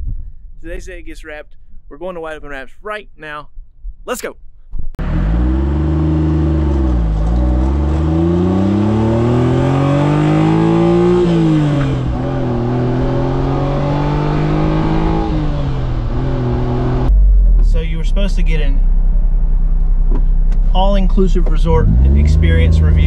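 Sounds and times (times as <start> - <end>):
car engine accelerating through gears: 5.0 - 17.7, 19.8 - 23.0.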